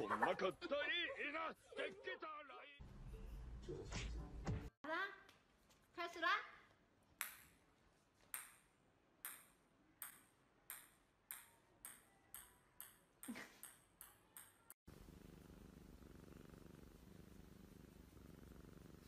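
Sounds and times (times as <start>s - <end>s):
small object bouncing pings: 8.3s - 14.8s.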